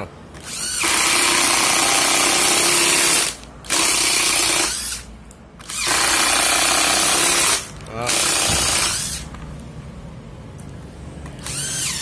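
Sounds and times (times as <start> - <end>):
impact driver driving screw into wood: 0.4 - 9.3.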